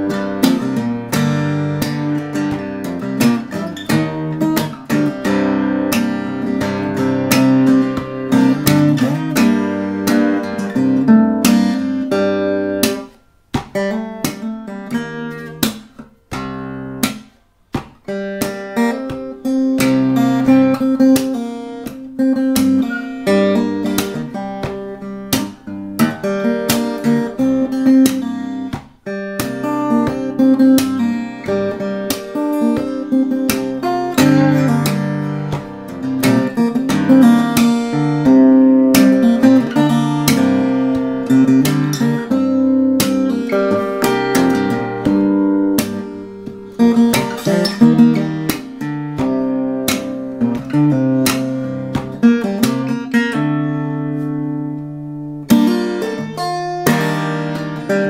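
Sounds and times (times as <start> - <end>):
fingerstyle acoustic guitar: 0.0 - 58.0
percussive hits on guitar: 12.7 - 14.5, 15.5 - 53.4.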